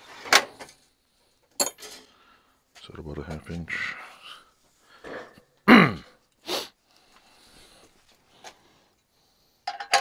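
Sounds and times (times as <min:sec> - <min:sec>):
man sneezing: 0:05.7 - 0:06.8
short sharp sniff: 0:06.4 - 0:06.8.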